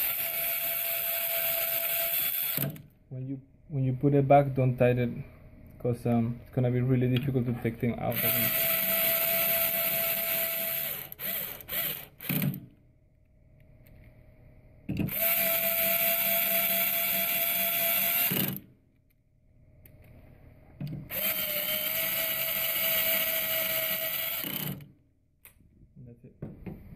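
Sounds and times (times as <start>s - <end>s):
electric screwdriver whining: 0.0s - 2.8s, 8.1s - 12.6s, 15.0s - 18.6s, 21.1s - 24.8s.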